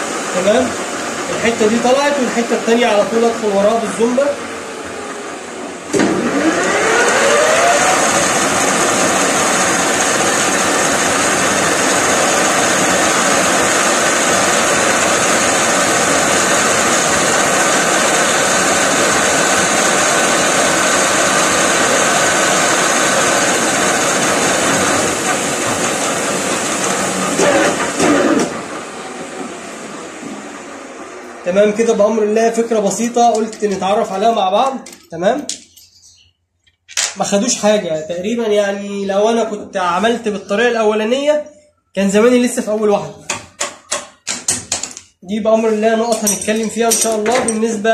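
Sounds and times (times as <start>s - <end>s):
metal lathe whining: 2.9s - 28.8s.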